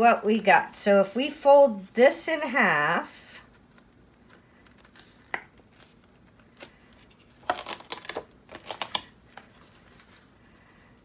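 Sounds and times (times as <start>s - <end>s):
paper rustling and crinkling: 3.5s - 10.8s.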